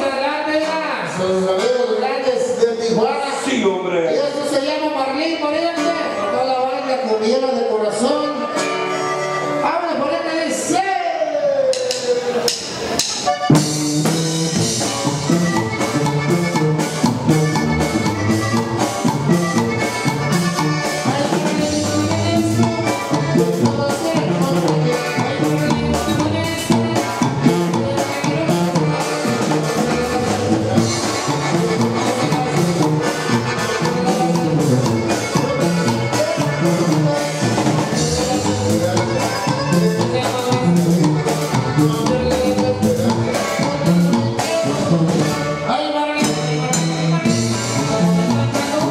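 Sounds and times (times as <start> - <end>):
electric guitar: 0.0 - 48.9
sousaphone bass line: 11.5 - 48.9
drum kit beat: 11.6 - 48.9.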